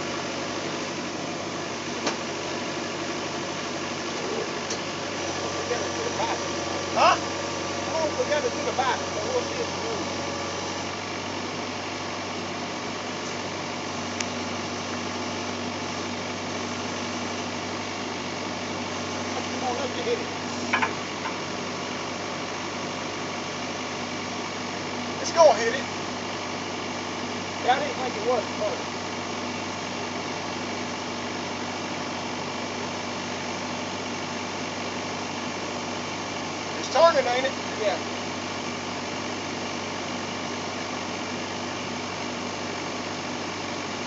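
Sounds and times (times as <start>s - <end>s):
excavator diesel engine running: 0.0s - 44.0s.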